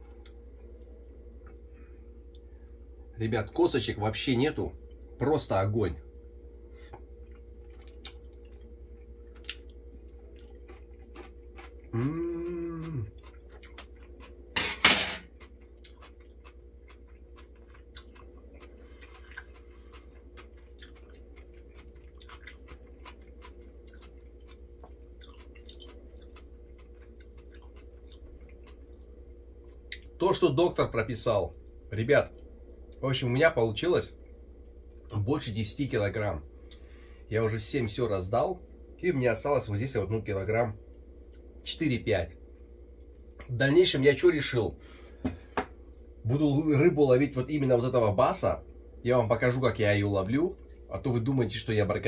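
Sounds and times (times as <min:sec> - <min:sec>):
man chewing: 0:06.7 - 0:14.6, 0:15.2 - 0:30.2
man humming mmm: 0:11.9 - 0:13.2.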